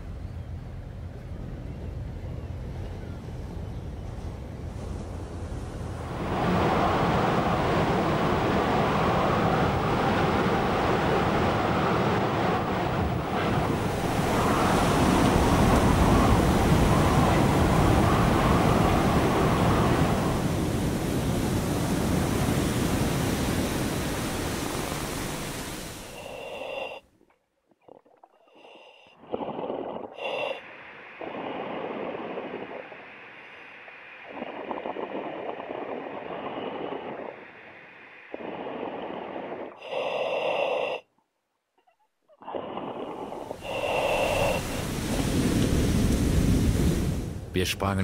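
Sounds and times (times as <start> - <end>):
roar of wind and waves: 0.0 - 27.0, 28.6 - 41.0, 42.3 - 48.0.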